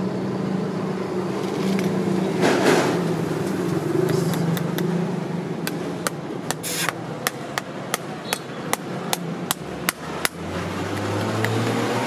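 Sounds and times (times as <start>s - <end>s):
hammer tapping on horseshoe: 5.6s - 11.8s.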